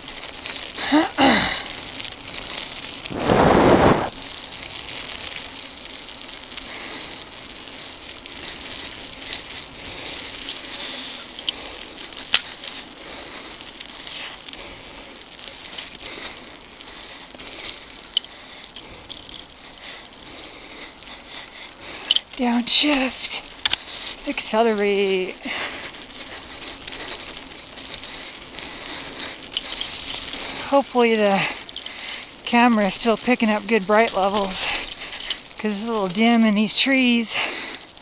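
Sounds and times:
bike rattling over bumps: 0.0s - 38.0s
bike tyres rolling over gravel: 0.0s - 38.0s.

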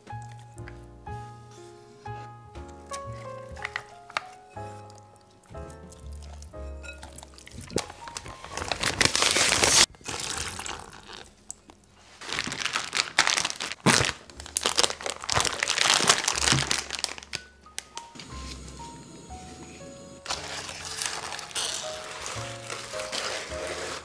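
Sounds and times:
plastic bag crinkling: 7.5s - 19.4s, 20.2s - 24.0s.

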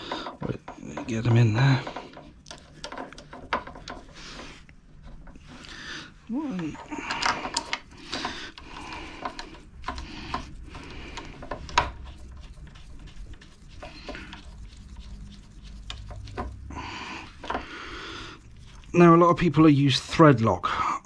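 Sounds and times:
gloves rustling and rubbing: 0.0s - 20.4s.

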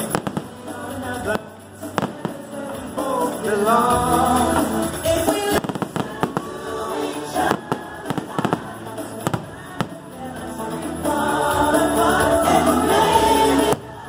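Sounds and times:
fireworks bangs: 0.0s - 3.8s, 5.0s - 10.5s
person singing: 0.0s - 14.0s
show music: 0.0s - 14.0s.

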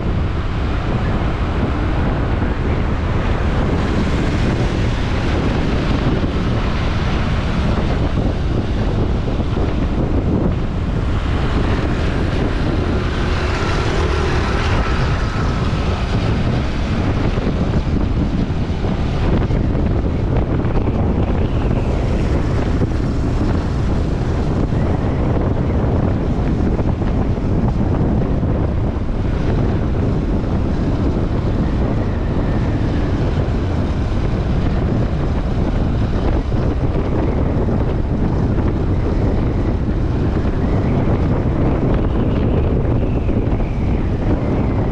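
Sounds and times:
street traffic: 0.0s - 44.9s
wind buffeting microphone: 0.0s - 44.9s.

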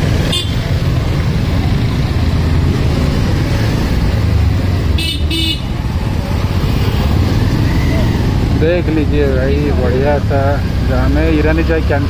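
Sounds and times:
motorcycle engine rumble: 0.0s - 12.0s
vehicle horn toots: 0.3s - 0.6s, 5.0s - 5.7s.

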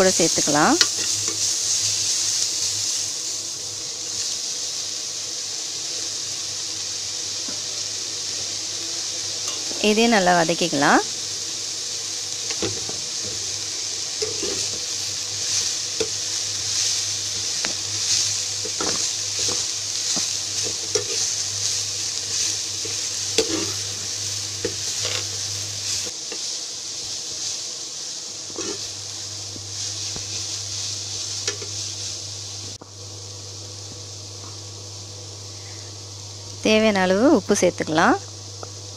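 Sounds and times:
vegetables sizzling in oil: 0.0s - 38.9s
spoon scraping a pan: 0.8s - 2.1s, 9.4s - 9.8s, 14.2s - 14.8s, 17.6s - 21.4s, 22.3s - 25.4s, 28.5s - 29.0s, 31.4s - 31.8s
steady low hum: 6.6s - 38.9s.

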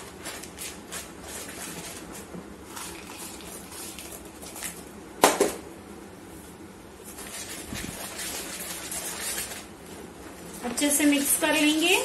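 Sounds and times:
spatula scraping plastic bowl: 7.1s - 9.7s.

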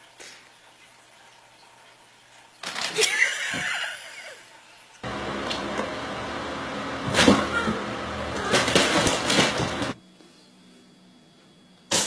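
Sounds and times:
person shrieking and laughing: 3.0s - 4.4s
room noise hum: 5.0s - 12.0s.

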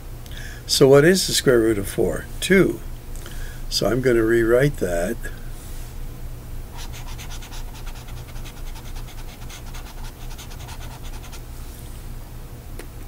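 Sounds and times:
steady low hum: 0.0s - 13.0s
stylus scratching on tablet: 6.7s - 11.5s.

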